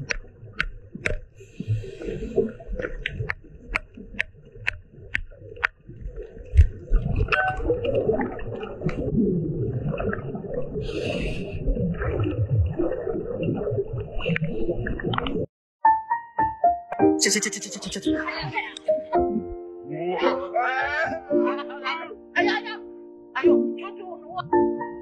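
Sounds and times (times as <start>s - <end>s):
scuba breathing bubbling rumble: 0.0s - 4.1s, 5.3s - 15.5s
exhaled bubbles hissing: 7.9s - 15.4s.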